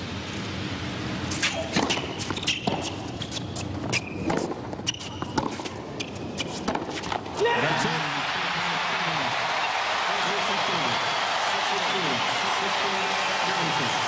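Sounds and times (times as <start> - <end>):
shoes squeaking: 1.3 - 7.9
tennis ball bouncing on court: 1.4 - 7.4.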